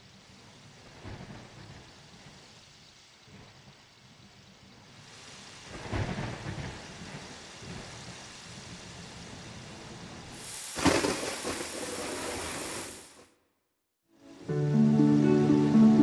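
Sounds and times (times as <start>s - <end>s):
rain falling: 0.0s - 13.2s
thunder rumble: 5.6s - 12.8s.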